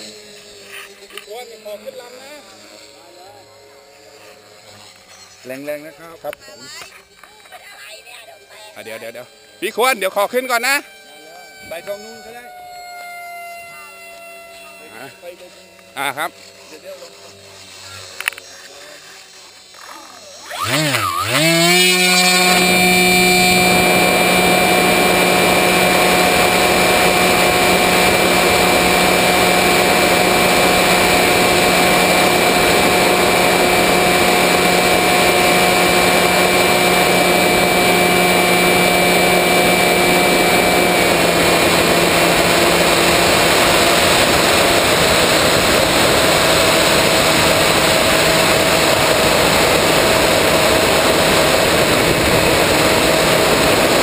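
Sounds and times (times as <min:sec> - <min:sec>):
electric motor whine: 0:00.0 - 0:54.0
wind rush: 0:38.6 - 0:54.0.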